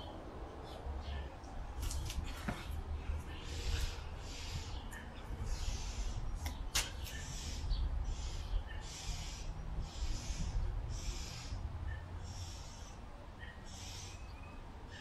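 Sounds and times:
man breathing hard: 2.3 - 6.4.

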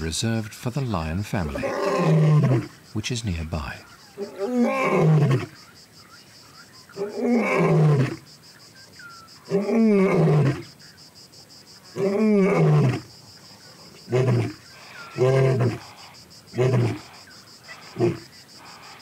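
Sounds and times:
insects trilling: 0.0 - 19.0
lion roaring: 1.5 - 2.7, 7.0 - 8.2, 12.0 - 13.1, 14.1 - 15.8, 16.5 - 17.1.

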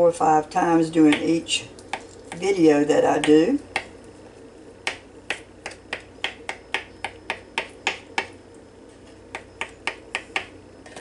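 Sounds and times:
knife chopping on cutting board: 4.8 - 8.3.

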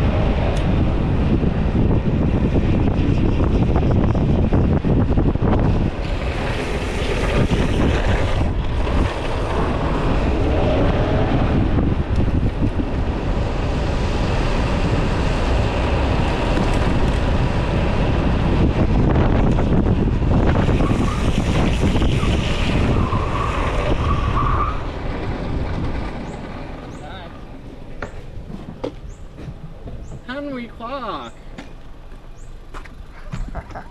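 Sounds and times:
skateboard wheels rolling on asphalt: 0.0 - 33.9
wind rushing over microphone: 0.0 - 33.9
skateboard wheels squealing: 20.6 - 25.3.

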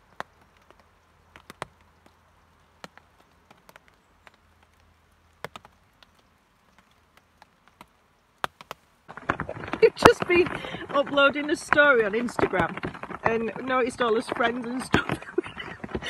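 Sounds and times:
drips tapping on tarpaulin: 0.0 - 8.8.

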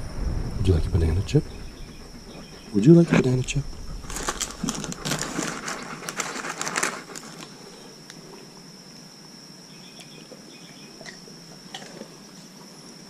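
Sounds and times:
faint chirps: 0.0 - 5.8, 7.4 - 11.5
high insect drone: 0.0 - 13.0
dog crunching a chip: 4.1 - 7.6.

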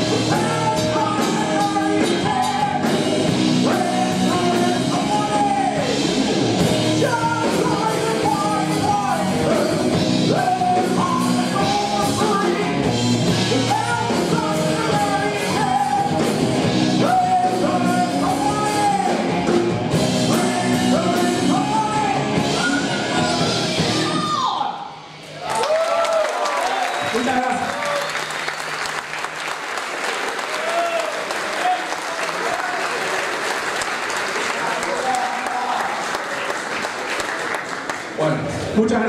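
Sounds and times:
man singing: 0.0 - 24.7
electric guitars: 0.0 - 25.4
bass guitar: 0.0 - 25.5
drum kit: 0.0 - 25.8.

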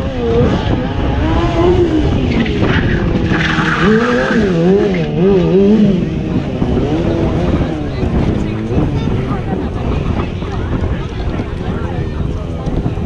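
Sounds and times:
motorcycle engine revving: 0.0 - 13.0
tyre squealing and skidding: 0.3 - 6.0.

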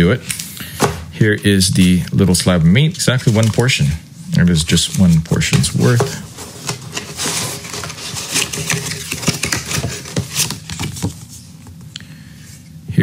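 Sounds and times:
cardboard box rustling and tapping: 5.5 - 11.3.

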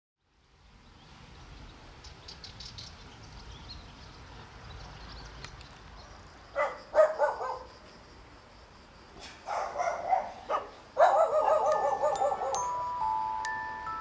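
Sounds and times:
dog barking: 6.6 - 7.7, 9.4 - 12.6.

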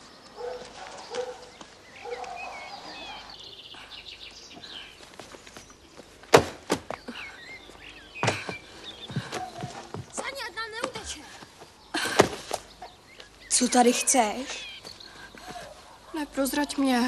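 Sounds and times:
birds chirping: 0.0 - 17.0
loud thumps of landing: 6.2 - 7.0, 8.2 - 10.2.

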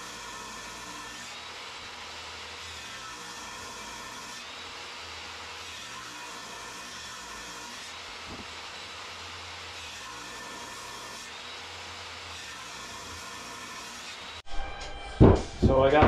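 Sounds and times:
table saw ripping board: 8.1 - 8.8.

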